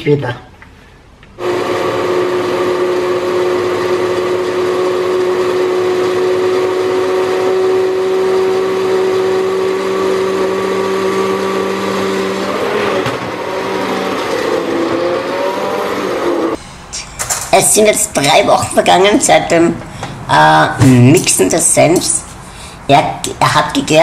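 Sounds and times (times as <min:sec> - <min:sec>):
immersion blender whining: 0:01.4 - 0:16.6.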